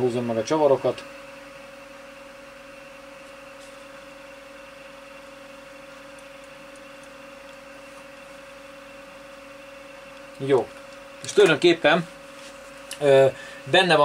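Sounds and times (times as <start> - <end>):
steady tonal hum: 0.0 - 14.0.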